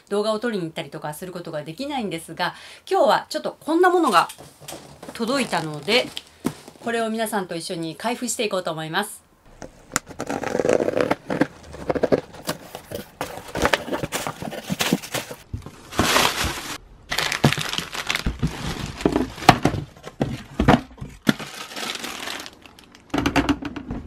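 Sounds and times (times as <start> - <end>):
packaging crinkling and rustling: 4.2 - 6.8, 9.6 - 23.2
scissors cutting cardboard box tape: 9.9 - 15.4.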